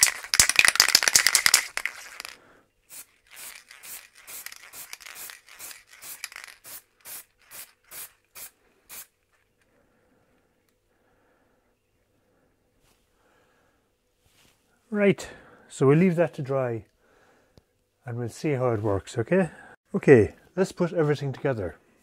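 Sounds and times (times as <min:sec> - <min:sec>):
spray can rattling: 0:00.0 - 0:09.2
short hisses of spray: 0:02.9 - 0:09.2.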